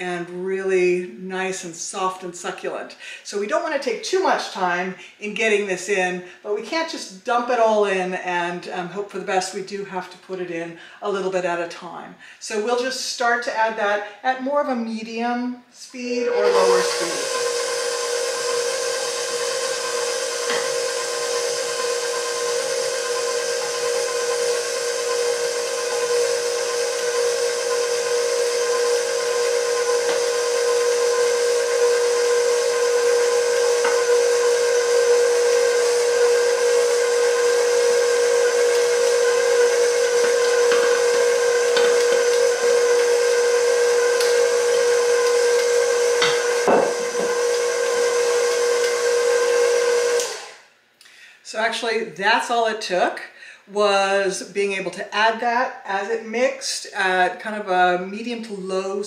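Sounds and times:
stand mixer motor whine: 16.2s - 50.6s.

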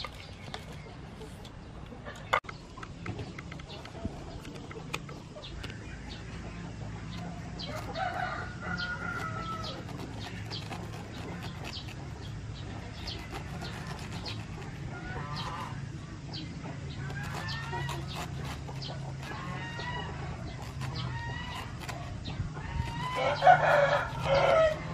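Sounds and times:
chickens clucking: 0.0s - 24.9s
steady low hum: 0.0s - 24.9s
rooster crowing: 7.7s - 9.9s, 22.8s - 24.9s.

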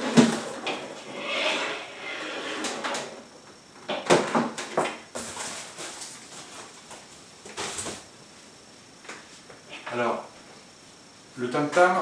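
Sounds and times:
cardboard rustle: 5.2s - 8.0s.

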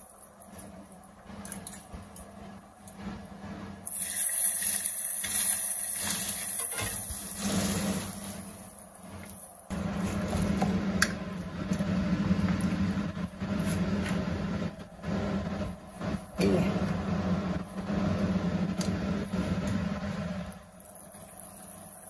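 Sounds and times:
steady hum: 0.0s - 22.0s
hot oil sizzling on meat: 3.8s - 8.9s.

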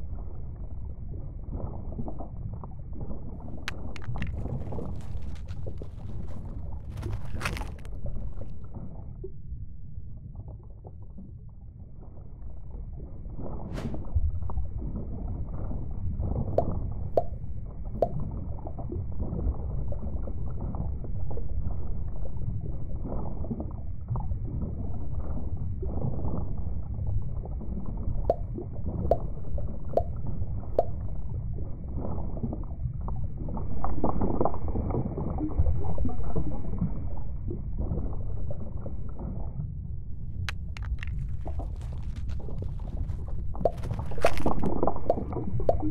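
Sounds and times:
low rumble of water: 0.0s - 45.9s
water gurgling: 25.4s - 45.9s.

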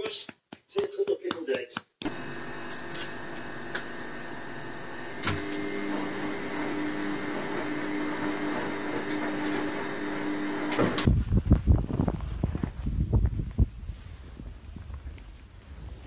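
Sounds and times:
machine hum with hiss: 2.1s - 11.1s.

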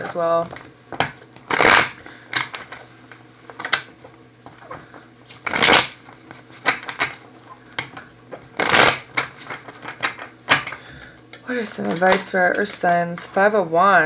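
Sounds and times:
cards being shuffled: 0.0s - 10.9s.

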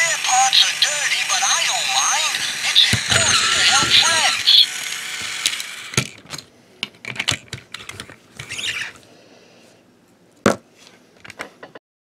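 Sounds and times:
toy scraping on table: 2.4s - 4.6s, 8.4s - 9.0s.

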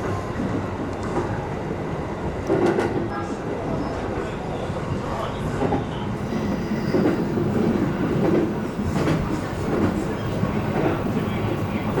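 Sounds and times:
train wheels rumbling on rail: 0.0s - 12.0s
rail joint clicks: 2.4s - 3.2s, 5.5s - 12.0s.

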